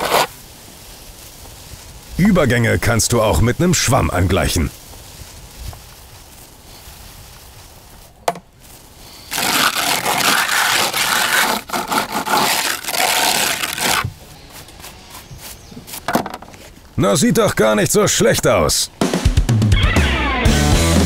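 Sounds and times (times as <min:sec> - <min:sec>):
hand float scraping render: 0:00.0 - 0:00.3, 0:09.3 - 0:16.8.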